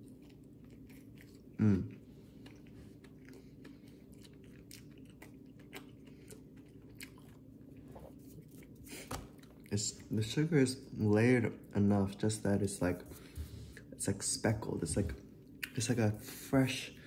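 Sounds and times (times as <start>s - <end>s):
person chewing: 0.0s - 10.2s
hummed vocal sound: 1.6s - 2.0s.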